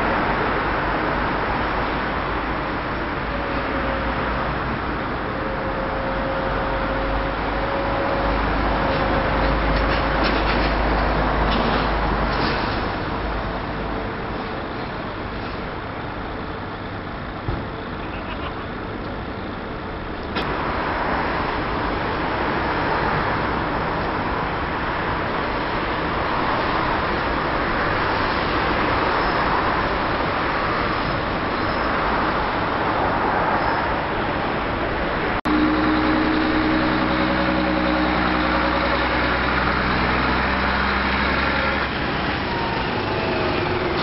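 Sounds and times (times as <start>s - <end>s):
traffic noise: 0.0s - 44.0s
deep engine rumble: 35.2s - 44.0s.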